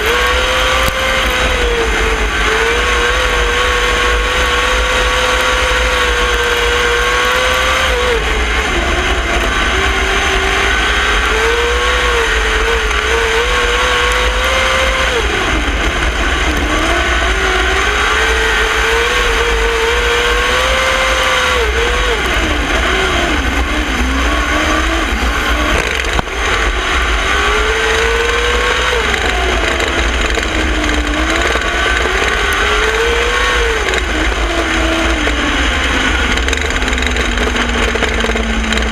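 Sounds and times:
low wind rumble: 0.0 - 38.9
race car engine: 0.0 - 38.9.

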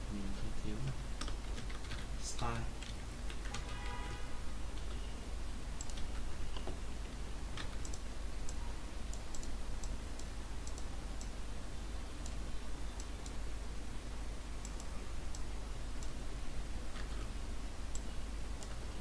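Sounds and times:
steady low hum: 0.0 - 19.0
computer mouse and keyboard clicks: 0.8 - 3.8, 5.8 - 11.3, 16.9 - 18.8.

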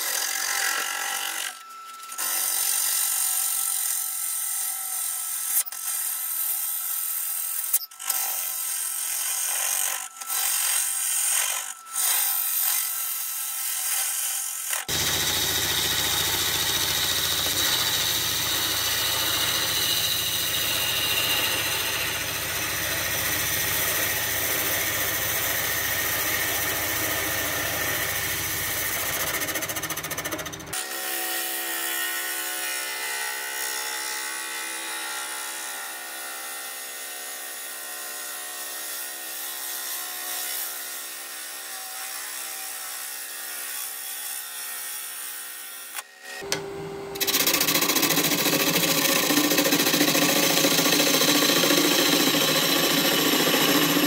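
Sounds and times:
wood lathe hum: 8.4 - 30.8, 46.3 - 54.0
turning tool scraping wood: 14.8 - 30.8, 47.2 - 54.0
lathe whine: 14.9 - 30.8, 46.4 - 54.0.

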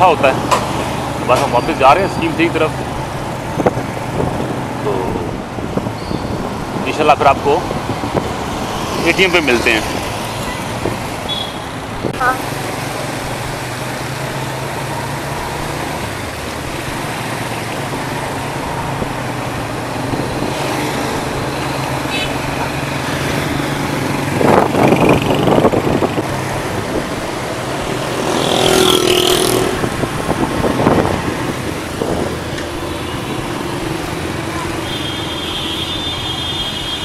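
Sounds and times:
passing traffic: 0.0 - 37.0
wind and road noise: 0.0 - 37.0
motorcycle engine: 9.9 - 36.7.

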